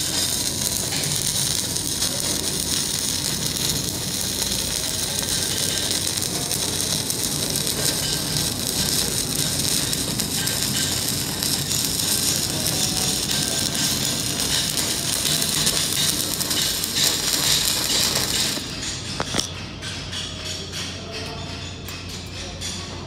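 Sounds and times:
welding arc crackling: 0:00.0 - 0:19.5.

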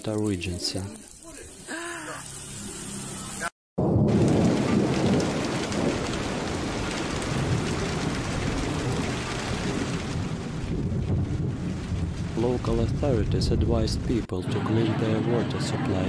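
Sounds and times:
volcano rumbling roar: 0:03.8 - 0:14.2.

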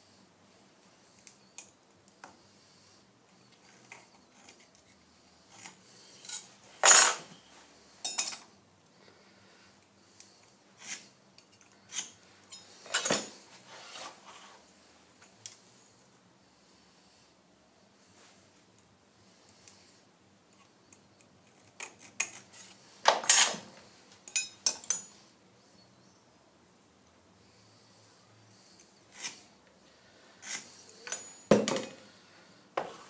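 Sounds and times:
metal scraping on metal: 0:05.5 - 0:07.4.

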